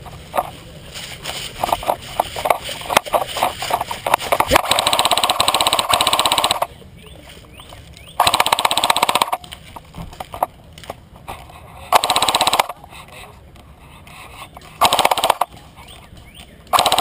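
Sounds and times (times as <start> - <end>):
airsoft gun firing bursts: 3.8 - 6.7, 8.2 - 9.4, 11.9 - 12.8, 14.8 - 15.6, 16.7 - 17.0.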